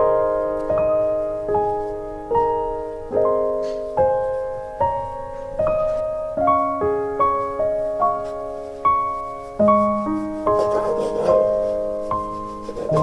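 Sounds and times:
slow gentle piano music: 0:00.0 - 0:13.0.

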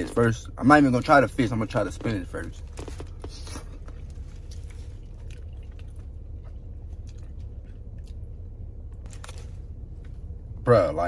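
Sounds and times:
steady low hum: 0:00.0 - 0:11.0
person chewing wetly: 0:02.6 - 0:09.5.

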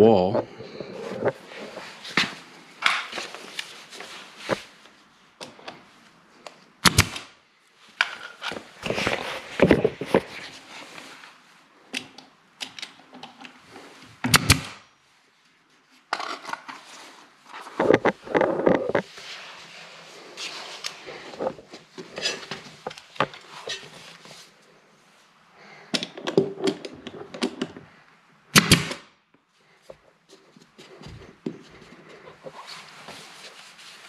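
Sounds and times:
nail gun shots: 0:06.8 - 0:07.3, 0:14.3 - 0:14.8, 0:28.5 - 0:29.1
quiet knocks and rubbing: 0:17.5 - 0:19.3.

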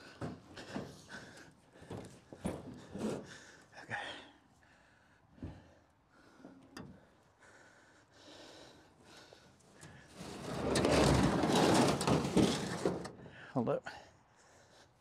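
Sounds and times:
tool chest scraping and rattling: 0:00.2 - 0:03.4, 0:09.8 - 0:13.3.

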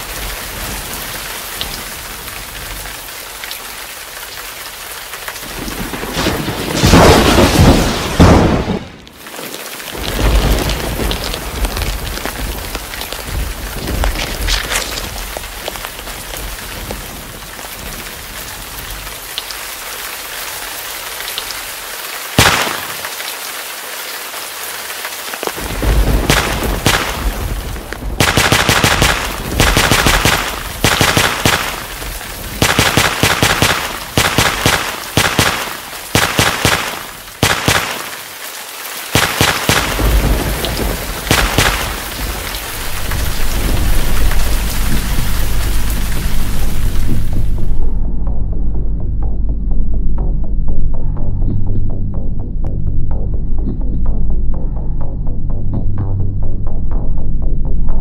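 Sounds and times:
heavy rain: 0:00.0 - 0:48.0
thunder rumbling: 0:05.4 - 0:09.1, 0:10.0 - 0:19.2, 0:25.5 - 0:38.0, 0:39.1 - 0:48.0
sharp thunder cracks: 0:05.8 - 0:09.0, 0:25.6 - 0:38.0, 0:39.2 - 0:45.2.

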